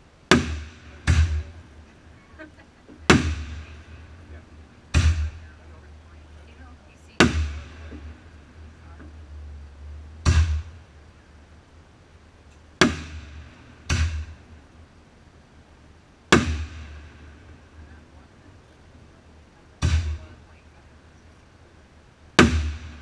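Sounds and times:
fireworks bangs with echo: 0:00.3 - 0:05.9, 0:06.6 - 0:09.0.

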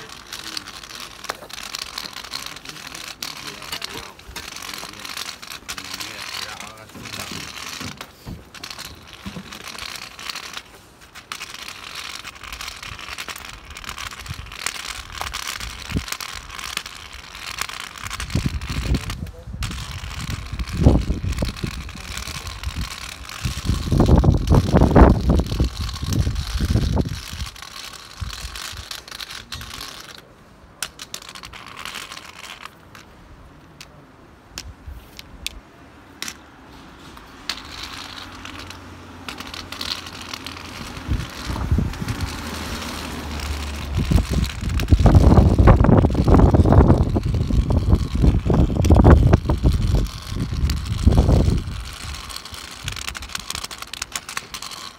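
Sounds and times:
truck engine rumbling: 0:35.3 - 0:54.9.

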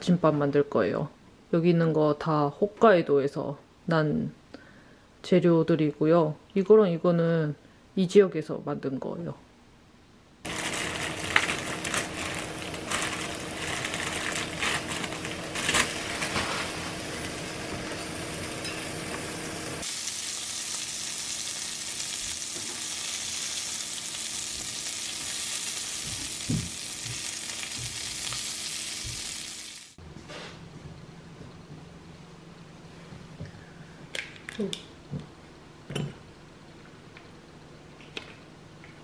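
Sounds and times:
plastic bag crinkling: 0:10.5 - 0:17.5
sausages sizzling in a frying pan: 0:10.5 - 0:30.0.

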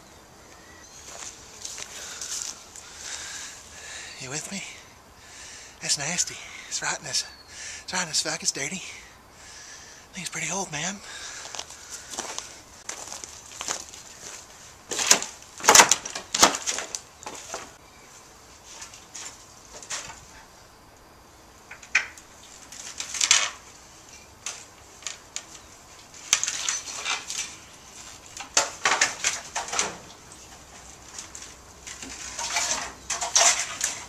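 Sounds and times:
dry brush crackling underfoot: 0:00.5 - 0:04.6, 0:10.4 - 0:17.8, 0:22.3 - 0:29.6, 0:30.2 - 0:33.7.

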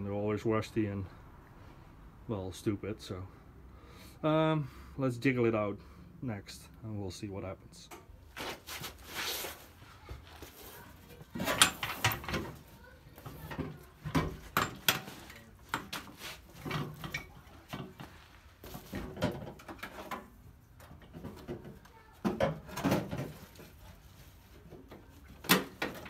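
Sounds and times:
metal fuel tank clanking and scraping: 0:11.2 - 0:18.1, 0:18.7 - 0:23.8.

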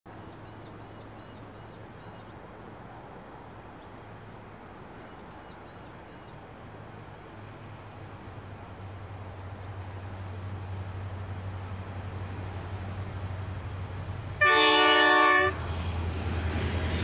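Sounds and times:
distant diesel locomotives idling: 0:07.3 - 0:17.0.

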